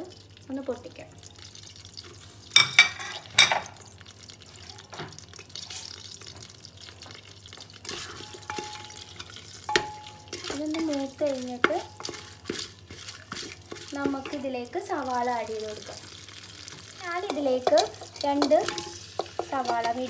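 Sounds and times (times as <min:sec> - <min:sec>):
spices sizzling in hot oil: 0:00.0 - 0:20.0
spoon scraping a pot: 0:02.5 - 0:03.6, 0:07.8 - 0:14.4, 0:17.2 - 0:20.0.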